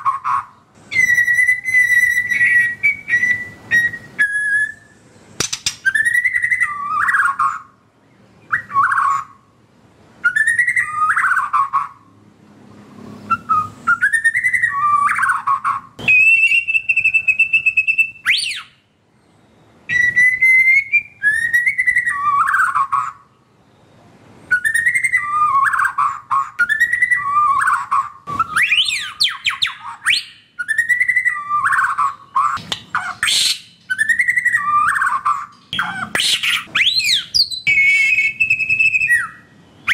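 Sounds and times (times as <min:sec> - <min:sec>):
bird singing whistled phrases: 0:00.0 - 0:09.4, 0:10.2 - 0:12.0, 0:13.2 - 0:23.9, 0:24.5 - 0:39.9.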